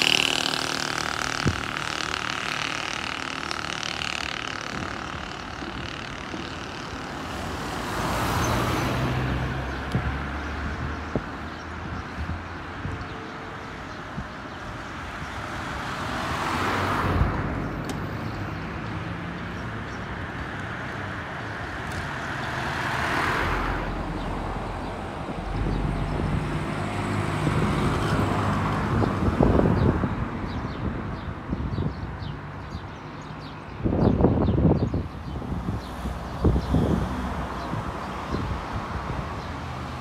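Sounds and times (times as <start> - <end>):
cars driving past: 0.0 - 12.6, 15.6 - 30.7.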